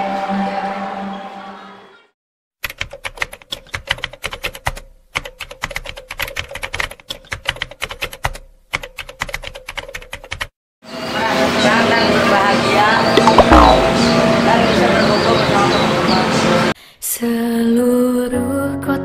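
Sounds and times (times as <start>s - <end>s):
keyboard typing clicks: 13.2s - 13.9s.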